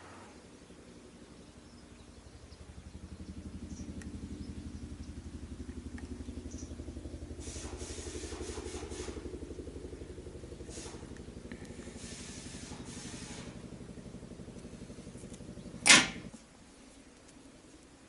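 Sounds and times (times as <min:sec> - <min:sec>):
engine idling: 0:00.0 - 0:17.9.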